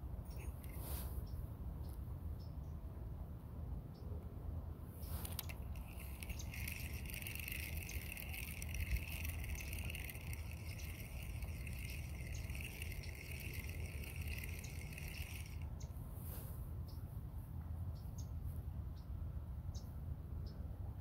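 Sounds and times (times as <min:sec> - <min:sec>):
fishing reel clicking whir: 0:05.2 - 0:15.7.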